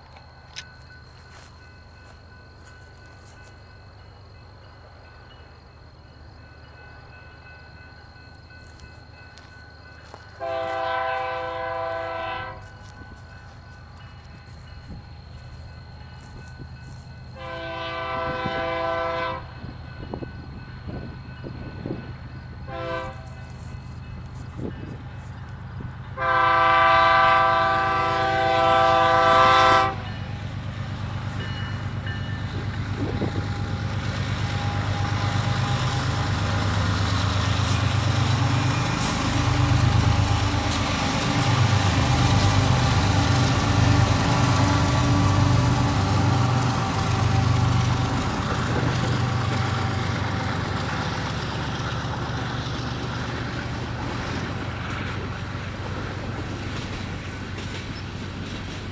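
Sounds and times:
diesel locomotive engine drone: 0.0 - 58.9
locomotive air horn blast: 10.4 - 12.7, 17.4 - 19.5, 22.7 - 23.3, 26.2 - 30.1.

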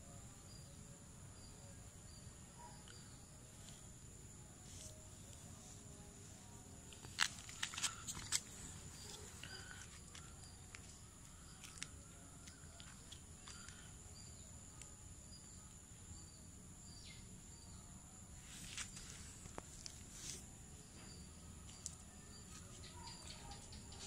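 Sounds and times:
faint bird chirps: 0.0 - 6.8, 7.6 - 24.0.

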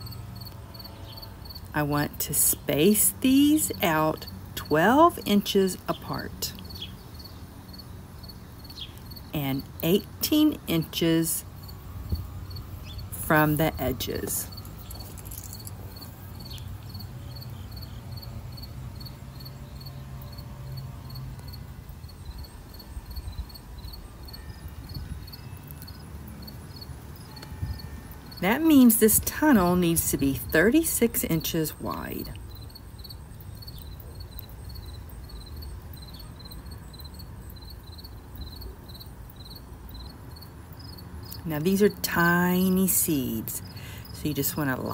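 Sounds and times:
cricket chirping: 0.0 - 1.7, 6.0 - 28.9, 32.0 - 41.4
low steady hum: 0.0 - 32.8.

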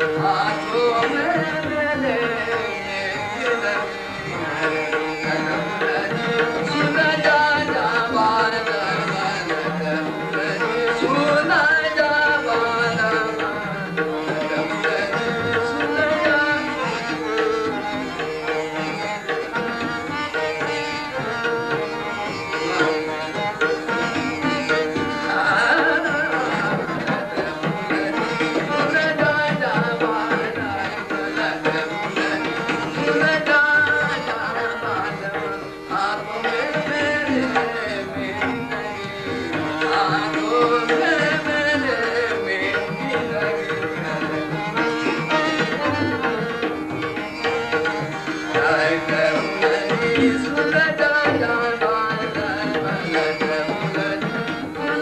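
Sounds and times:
person singing: 0.0 - 18.6, 19.2 - 55.0
harmonium sustained notes: 0.0 - 55.0
tabla rhythm: 0.0 - 55.0.

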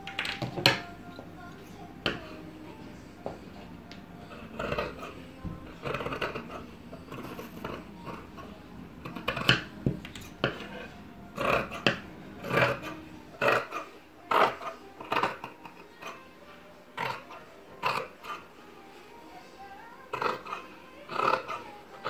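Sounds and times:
shears snipping fabric: 20.2 - 21.8.

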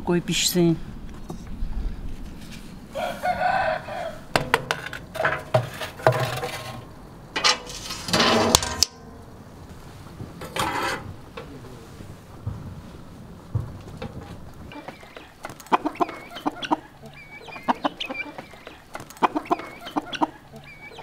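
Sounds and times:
rooster crowing: 2.9 - 4.5
chickens calling: 2.9 - 8.0, 11.1 - 21.0
baking tray clattering on metal rack: 4.4 - 9.2, 10.3 - 11.5
iron oven door and latch: 4.4 - 9.2.

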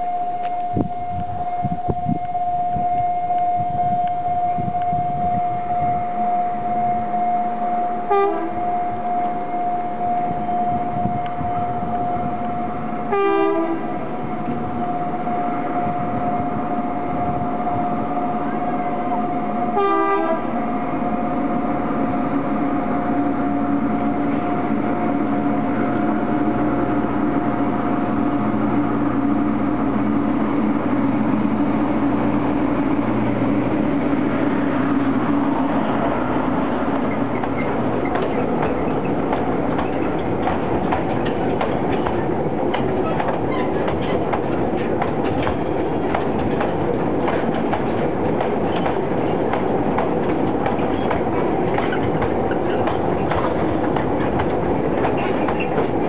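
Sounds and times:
locomotive horn blasts: 0.0 - 20.8
diesel engine drone: 20.4 - 44.9
wagons clattering on track: 37.1 - 56.0.

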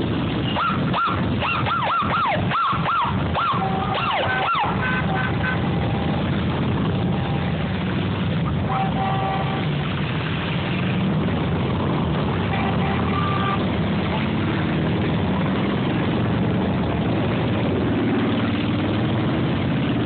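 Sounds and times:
motorcycle engines rumbling: 0.0 - 20.0
siren yelping: 0.5 - 6.2.

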